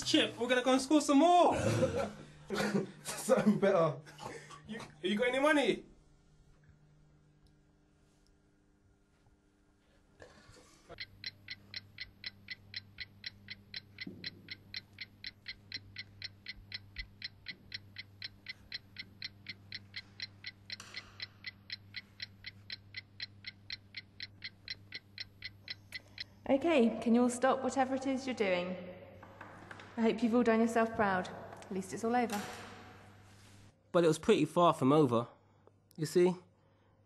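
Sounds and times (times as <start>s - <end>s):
steady low hum: 0.0s - 28.3s
clock ticking: 10.9s - 26.4s.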